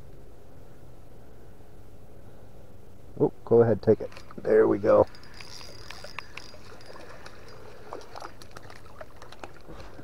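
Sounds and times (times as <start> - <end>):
water splashing and trickling: 3.9 - 10.0
fishing reel clicking: 5.0 - 7.6.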